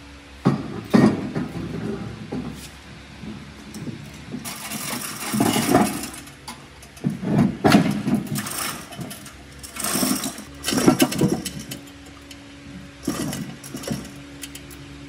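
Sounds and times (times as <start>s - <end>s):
chain hoist clattering: 3.8s - 7.1s, 7.7s - 12.4s, 13.0s - 14.8s.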